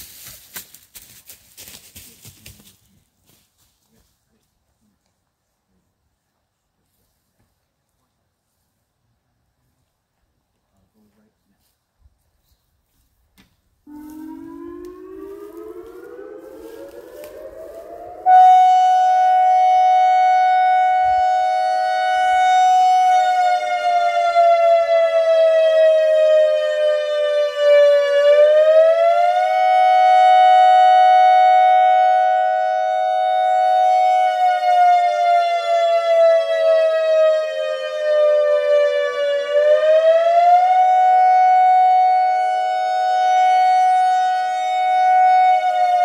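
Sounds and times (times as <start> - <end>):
warning siren wailing: 13.8 - 46.0.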